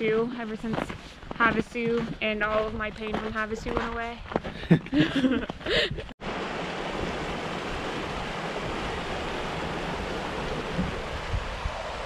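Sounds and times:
creek flowing over rocks: 6.2s - 12.0s.

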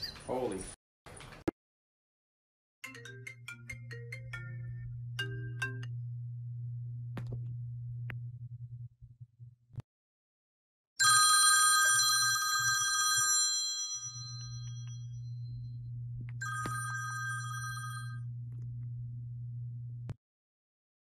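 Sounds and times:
steady low hum: 3.9s - 9.8s, 14.7s - 20.2s
phone alarm chime: 16.4s - 18.2s.

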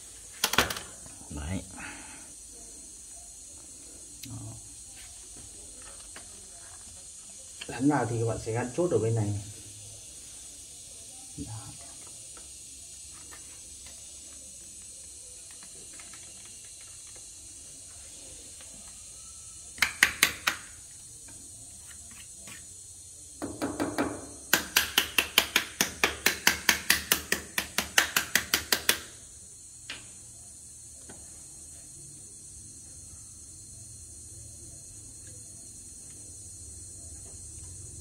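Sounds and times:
ratchet-like plastic clicking: 0.4s - 1.0s, 15.4s - 17.3s.

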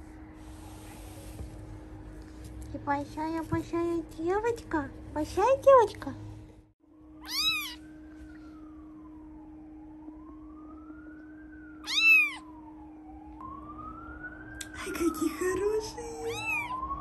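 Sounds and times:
steady low hum: 0.0s - 17.0s
faint wailing tone: 6.9s - 13.4s
kitten mewing: 7.2s - 7.8s, 11.8s - 12.4s, 16.2s - 16.8s.

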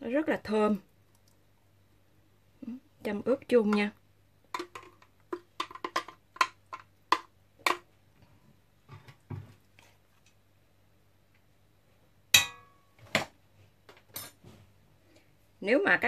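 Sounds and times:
spoon tapping plastic container: 4.6s - 7.9s.

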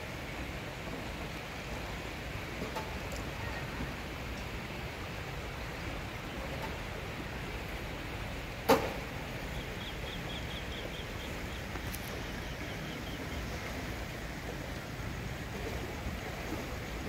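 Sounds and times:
rippling floodwater hiss: 0.0s - 17.0s
bird chirping: 9.5s - 13.4s.

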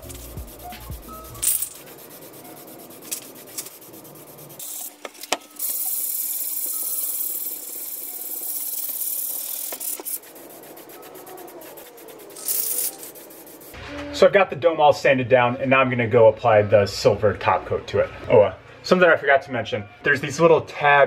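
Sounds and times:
aerosol can spraying hiss: 0.0s - 1.4s, 5.6s - 13.8s.

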